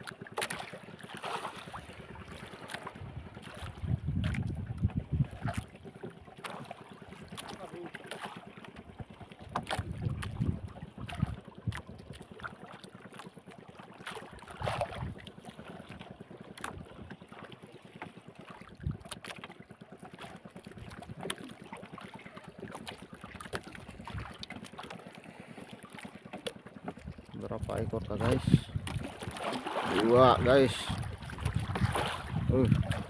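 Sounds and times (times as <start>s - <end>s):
boat knocking: 0.0s - 33.0s
waves lapping against wooden boat: 0.0s - 33.0s
wind buffeting microphone: 2.9s - 5.7s, 9.6s - 11.9s, 18.8s - 19.1s, 27.0s - 33.0s.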